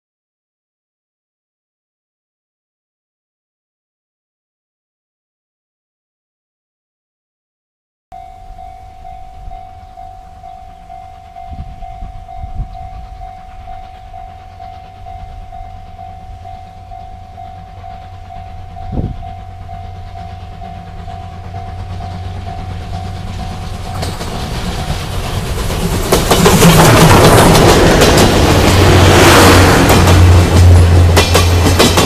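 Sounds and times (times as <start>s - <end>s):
level-crossing warning bell: 8.1s - 31.8s
train rumble and rail clatter: 8.2s - 32.0s.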